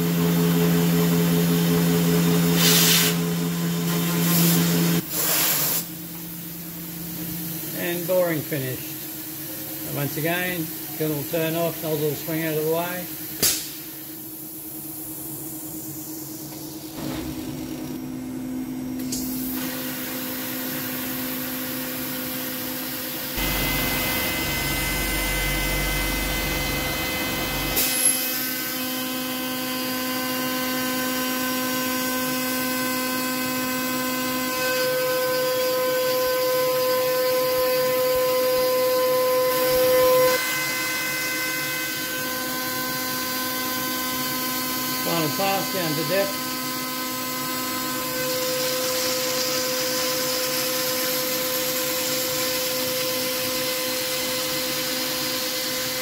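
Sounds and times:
mist coolant hiss: 0:04.2 - 0:05.9
sharp click: 0:13.4 - 0:13.8
cnc spindle whine: 0:19.7 - 0:56.0
end mill cutting aluminium: 0:23.4 - 0:28.6.

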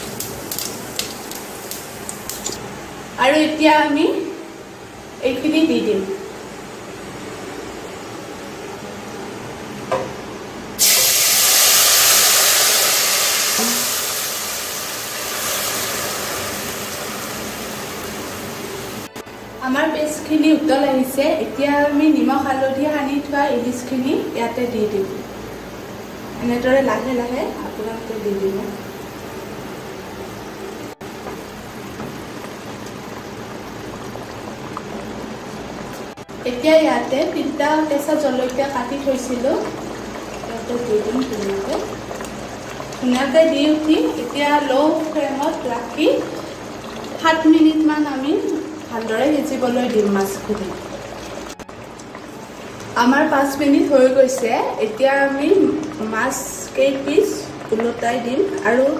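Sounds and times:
paste sizzling in hot oil: 0:00.0 - 0:02.6, 0:10.8 - 0:19.1
gravy bubbling in a wok: 0:00.0 - 0:03.2, 0:06.4 - 0:19.1, 0:28.3 - 0:58.9.

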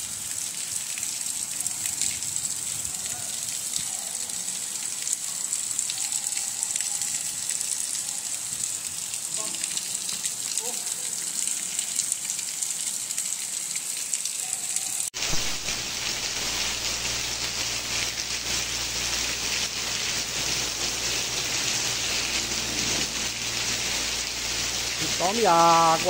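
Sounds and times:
heavy rain pouring: 0:14.8 - 0:26.0.

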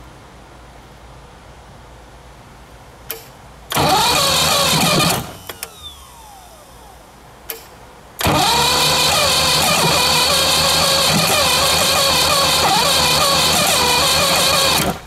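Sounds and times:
starter solenoid click: 0:03.1 - 0:05.9, 0:07.5 - 0:15.0
outboard engine cranking: 0:03.7 - 0:05.5, 0:08.2 - 0:15.0
starter whir spinning down: 0:03.7 - 0:07.0, 0:08.2 - 0:15.0.

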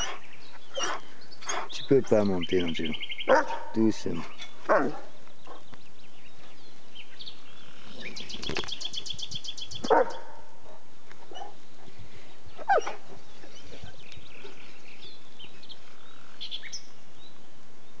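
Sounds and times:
dog barking: 0:03.3 - 0:03.8, 0:04.7 - 0:05.6, 0:09.8 - 0:11.6, 0:12.7 - 0:13.1.

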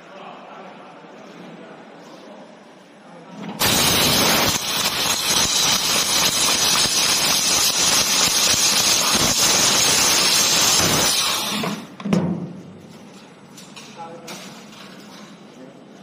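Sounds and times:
hiss of assist gas: 0:03.6 - 0:11.8.

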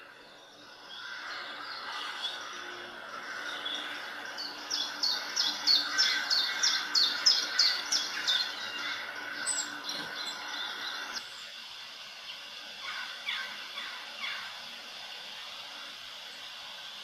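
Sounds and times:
songbird singing: 0:00.0 - 0:11.6, 0:12.2 - 0:14.6.

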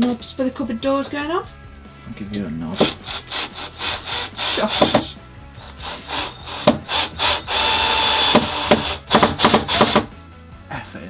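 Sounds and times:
cordless drill driving a screw: 0:02.8 - 0:10.1.

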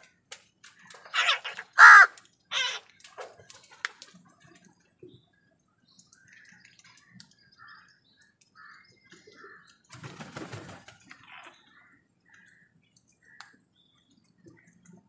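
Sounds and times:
beaks pecking concrete: 0:00.2 - 0:04.2.

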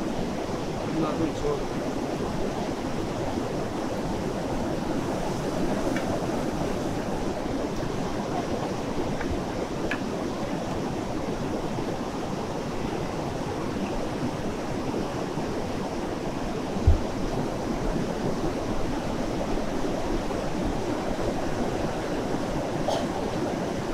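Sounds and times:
fast-flowing river: 0:00.0 - 0:23.9
low thump: 0:16.8 - 0:17.1.

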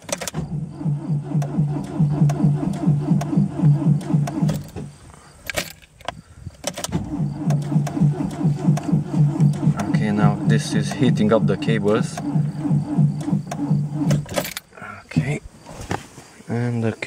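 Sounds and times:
starter motor cranking slowly: 0:00.3 - 0:05.0, 0:06.9 - 0:14.4
starter click: 0:01.3 - 0:14.7.

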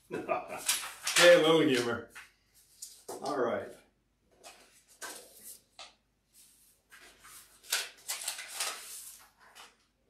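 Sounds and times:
paper rustling: 0:00.5 - 0:03.6, 0:04.3 - 0:10.0.

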